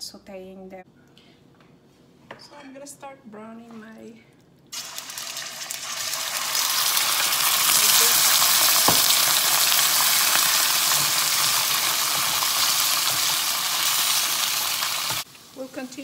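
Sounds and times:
beef sizzling in hot oil: 0:04.8 - 0:16.0.

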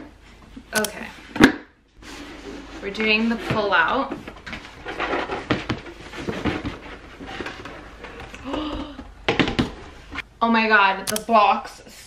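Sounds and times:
cardboard scraping and rustling: 0:02.0 - 0:08.4.

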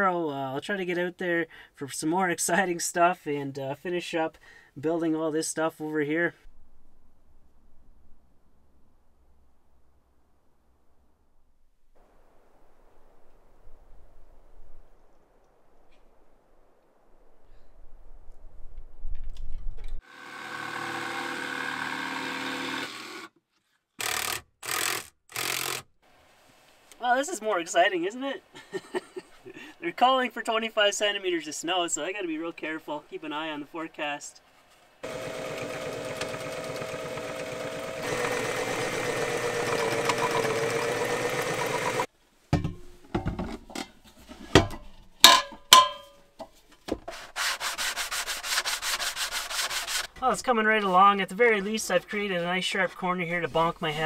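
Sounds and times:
electric power tool running: 0:20.0 - 0:23.3, 0:35.0 - 0:42.1
hand sanding wood: 0:35.0 - 0:42.1, 0:47.1 - 0:50.3
sewing machine stitching: 0:35.0 - 0:42.1
knocks and clunks: 0:42.5 - 0:47.1.

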